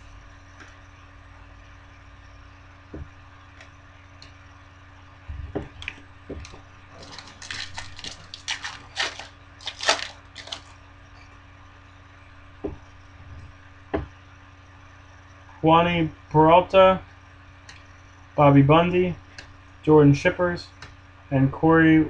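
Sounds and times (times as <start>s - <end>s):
foil wrapper crinkling and tearing: 6.9s - 10.8s.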